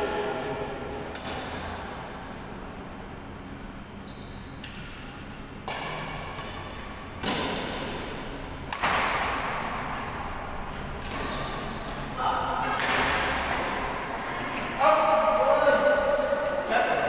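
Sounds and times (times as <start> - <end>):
rackets hitting shuttlecock: 0.9 - 2.0, 4.6 - 14.7, 16.0 - 17.0.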